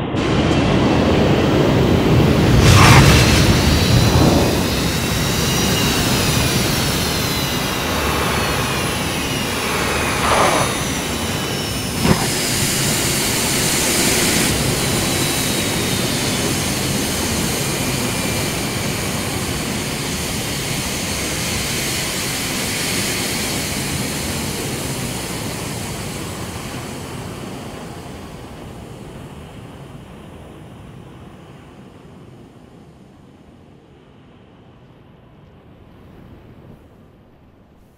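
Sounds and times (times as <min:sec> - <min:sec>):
jet engine running loud: 0:00.0 - 0:34.4
sharp crack: 0:12.0 - 0:13.0.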